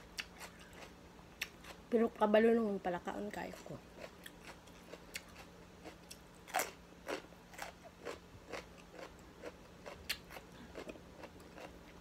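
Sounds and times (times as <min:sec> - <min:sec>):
carrot crunching while chewed: 0:03.6 - 0:12.0.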